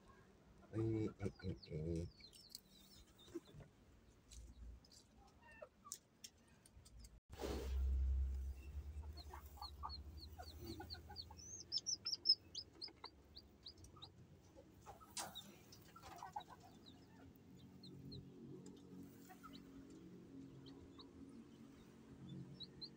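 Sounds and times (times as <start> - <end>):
low rumble: 7.4 - 10.6
chick peeping: 8.8 - 18.1, 19.2 - 21.1.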